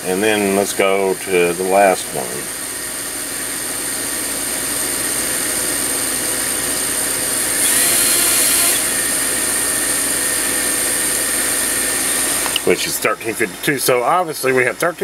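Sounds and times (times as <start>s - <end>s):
quadcopter motors whining: 3.8s - 12.9s.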